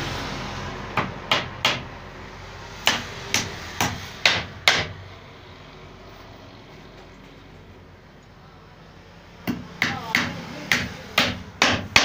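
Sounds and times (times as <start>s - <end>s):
hammer striking nails into wood: 1.0s - 1.9s, 2.8s - 5.0s, 9.5s - 12.0s.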